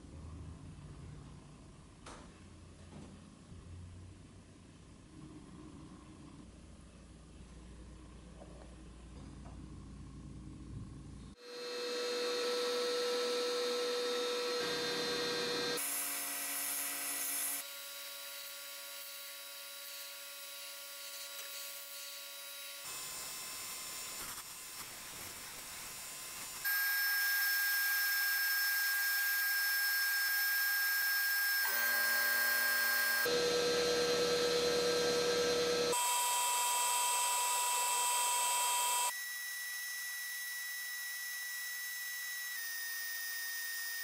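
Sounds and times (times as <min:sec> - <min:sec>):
sandblast nozzle hissing: 0:24.1 - 0:26.7.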